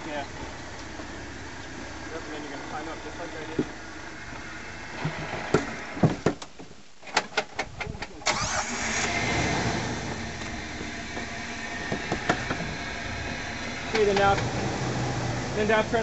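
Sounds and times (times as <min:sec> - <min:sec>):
engine running under load: 0:08.3 - 0:16.0.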